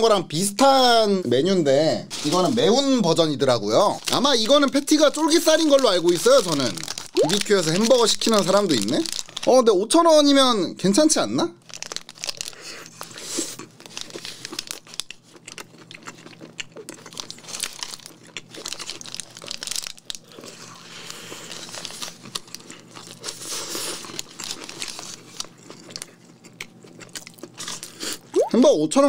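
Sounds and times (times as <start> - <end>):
paper wrapper crinkling: 2.1 - 9.7, 11.6 - 16.0, 17.0 - 26.2
crunchy chewing: 11.7 - 28.3.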